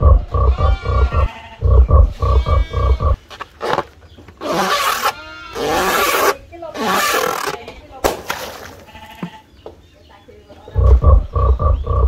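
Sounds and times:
grunt-like animal calls: 0:00.0 - 0:03.2.

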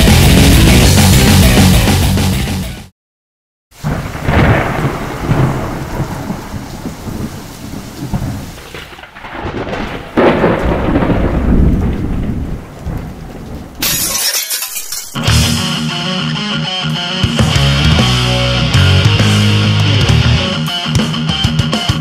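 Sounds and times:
heavy rain: 0:03.8 - 0:13.8
rolling thunder: 0:03.8 - 0:13.8.

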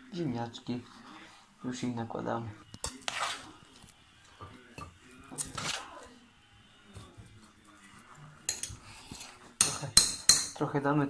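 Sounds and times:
spoon clinking and scraping pot: 0:02.7 - 0:05.9, 0:08.4 - 0:10.6.

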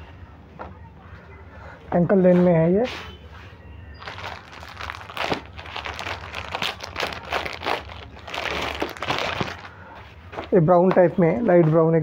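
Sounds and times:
plastic bag crinkling: 0:04.0 - 0:09.8.

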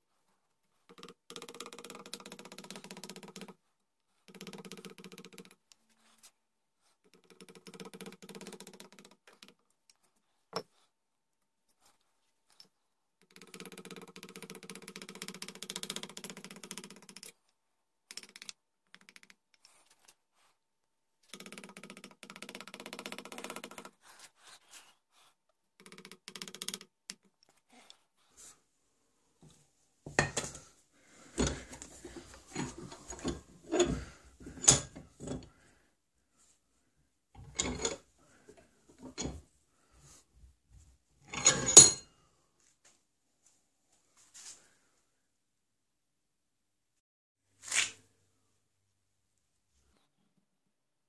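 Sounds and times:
carving tool scraping wood: 0:21.3 - 0:25.4.

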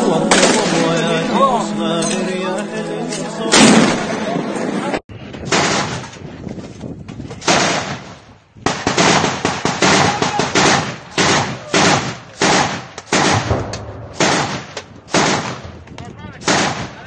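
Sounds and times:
rifle shots echoing: 0:00.3 - 0:01.0, 0:05.5 - 0:06.0, 0:07.4 - 0:08.1, 0:08.7 - 0:17.0.

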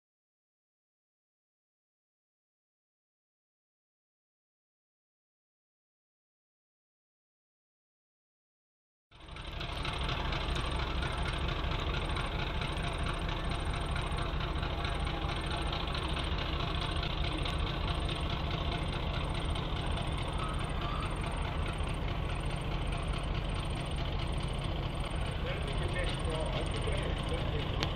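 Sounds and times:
diesel locomotive engine running: 0:09.1 - 0:27.9.

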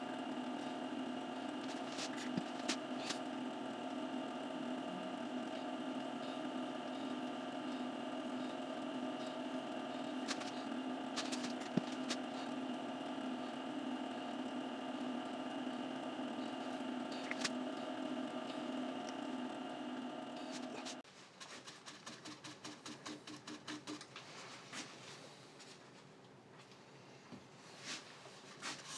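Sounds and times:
lathe motor humming: 0:00.0 - 0:21.0.

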